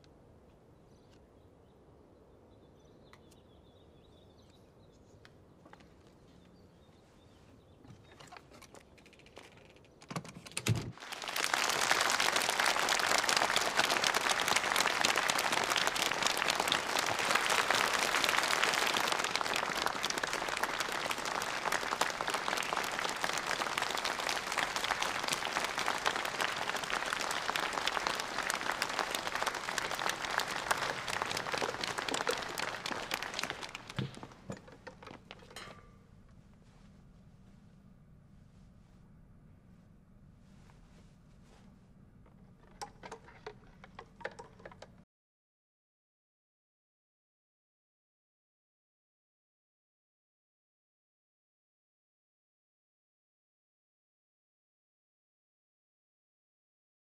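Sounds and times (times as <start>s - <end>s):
audience applauding: 11.0s - 35.3s.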